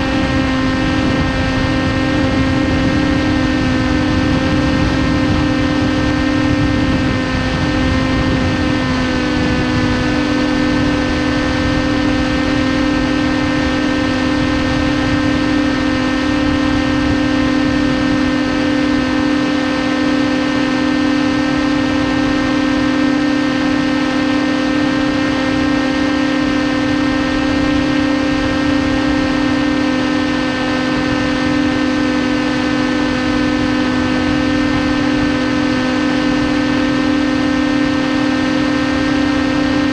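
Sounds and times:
electric motor and propeller whine: 0:00.0 - 0:39.9.

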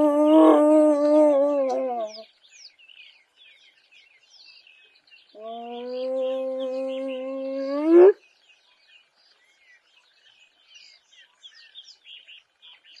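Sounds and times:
faint bird chirps: 0:00.0 - 0:13.0
hyena whoop call: 0:05.4 - 0:08.2.

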